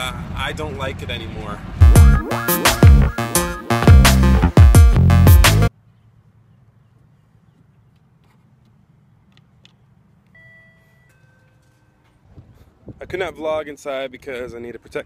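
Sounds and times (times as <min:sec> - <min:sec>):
music: 0:01.8 - 0:05.7.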